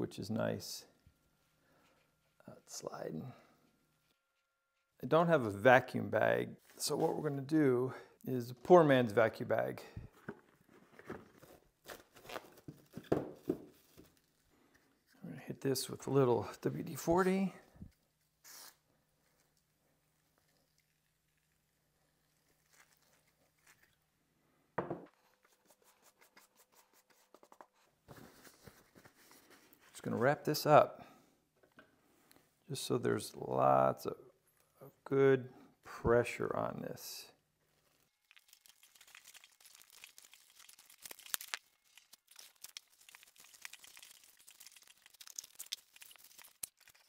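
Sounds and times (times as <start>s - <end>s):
plastic cling wrap crinkling: 22.2s - 24.0s, 37.8s - 47.0s.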